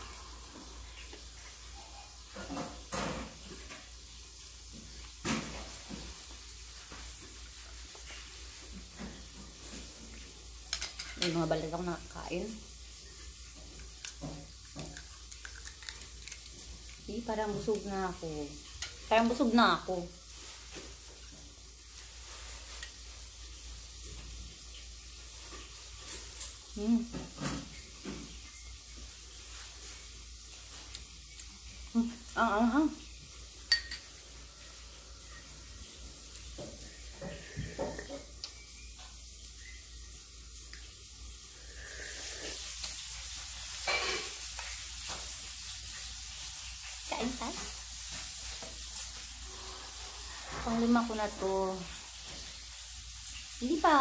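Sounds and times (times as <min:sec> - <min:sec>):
food sizzling in a pan: 0:00.0 - 0:54.0
spoon scooping from eggshell: 0:13.8 - 0:16.6
steady hiss: 0:16.0 - 0:54.0.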